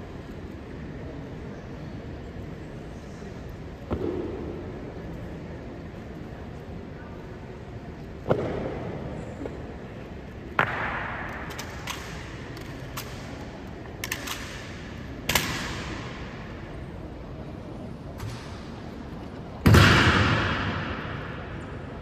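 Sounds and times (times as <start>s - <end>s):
loud sharp strikes with echo: 19.6s - 21.7s.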